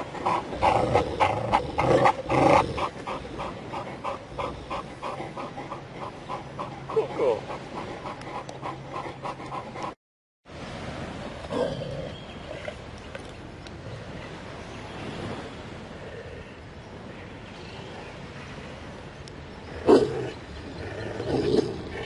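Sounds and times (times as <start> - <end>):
dogs growling: 0.0 - 10.0.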